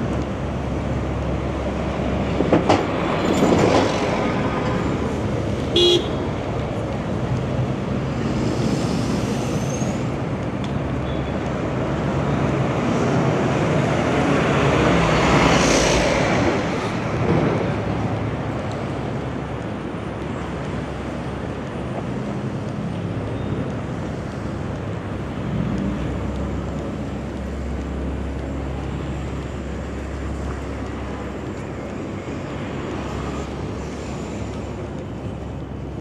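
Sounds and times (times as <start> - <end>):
street traffic rumble: 0.0 - 36.0
vehicle horn toot: 5.7 - 6.2.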